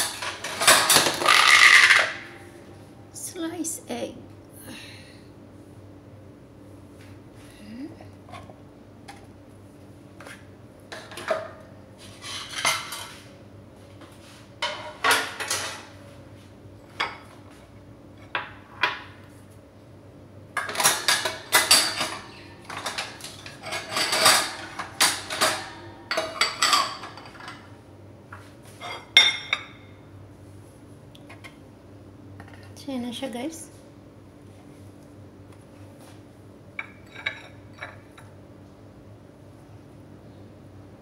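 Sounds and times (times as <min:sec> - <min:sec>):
dishes and cutlery clinking: 0:20.6 - 0:27.7, 0:36.8 - 0:38.3.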